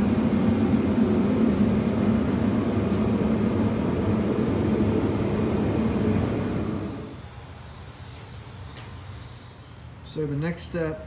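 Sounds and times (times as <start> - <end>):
heaters humming and hissing: 0.0 - 11.0.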